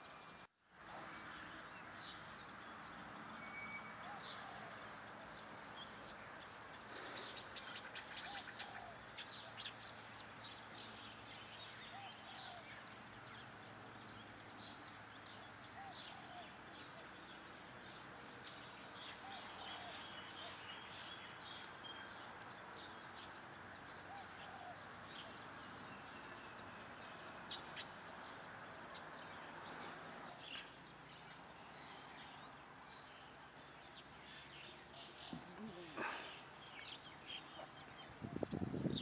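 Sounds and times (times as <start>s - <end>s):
faint steady high tone: 3.2s - 6.3s.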